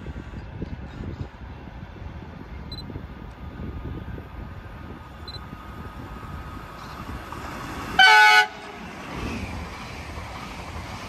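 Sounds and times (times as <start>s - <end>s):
trains rumbling: 0.0s - 11.0s
wind: 0.0s - 11.0s.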